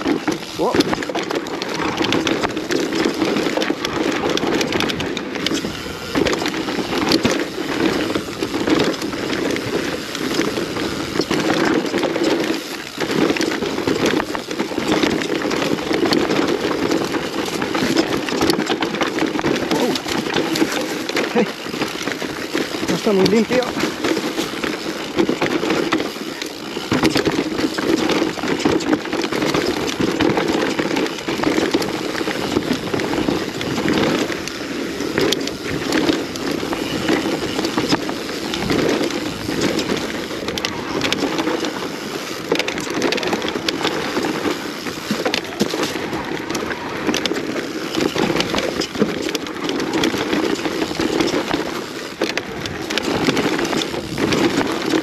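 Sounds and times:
bike knocks and rattles: 0:00.0 - 0:55.0
tyre and trail noise: 0:00.0 - 0:55.0.

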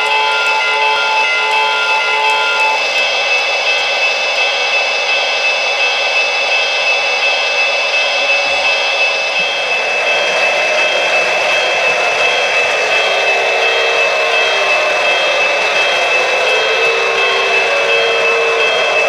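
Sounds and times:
held multi-note tone: 0:00.0 - 0:02.8
model locomotive turbine whine: 0:00.0 - 0:19.0.

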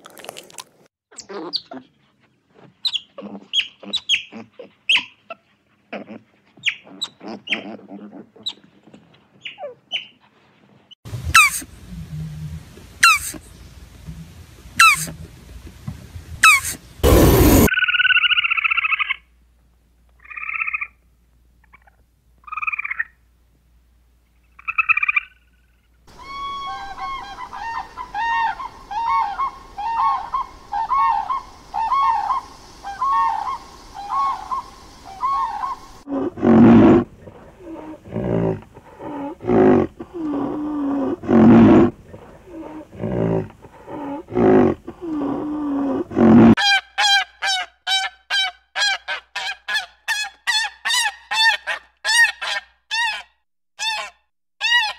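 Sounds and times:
crane calling: 0:26.1 - 0:36.1
squirrel squeaking: 0:46.6 - 0:54.9.

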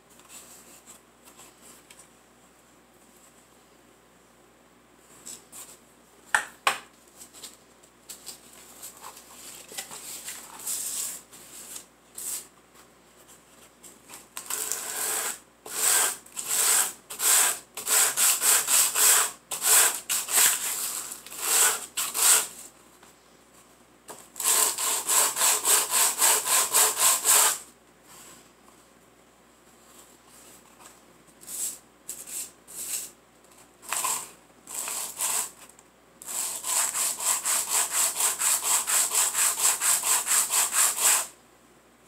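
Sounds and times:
wood rasping on sandpaper: 0:14.6 - 0:22.5, 0:24.4 - 0:27.6, 0:36.3 - 0:41.3.

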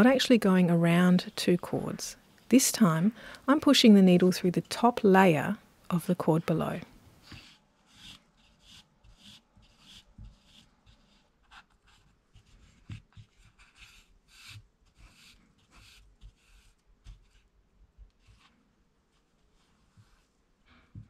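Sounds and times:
scratchy rustles of yarn: 0:06.4 - 0:20.7.

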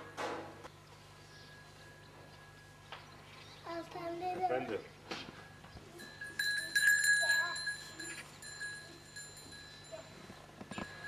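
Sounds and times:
cow bell ringing: 0:05.9 - 0:11.0.

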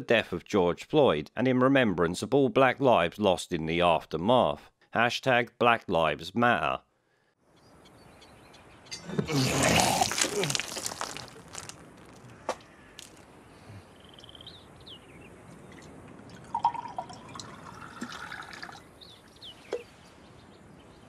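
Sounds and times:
wine pouring into metal goblet: 0:16.3 - 0:18.8.

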